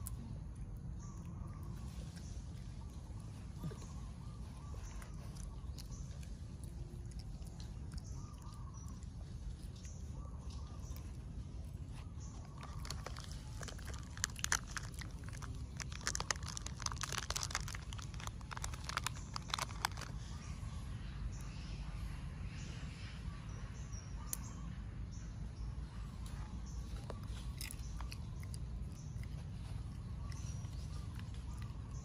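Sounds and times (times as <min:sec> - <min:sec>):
crunching crackling clicks: 0:12.3 - 0:20.4, 0:26.2 - 0:32.0.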